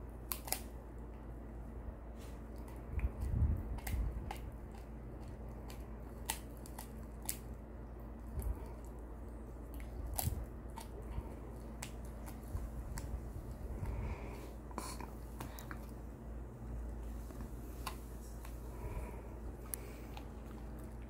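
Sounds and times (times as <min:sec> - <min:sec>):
dog chewing bone: 0:02.5 - 0:16.0.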